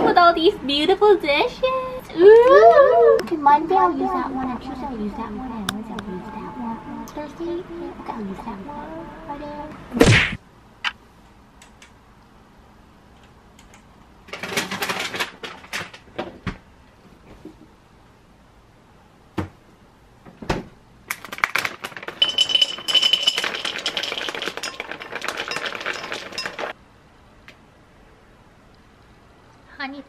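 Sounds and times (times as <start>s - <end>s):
berries rattling into glass bowl: 21.4s - 26.8s
dishes clinking and clattering: 22.1s - 26.8s.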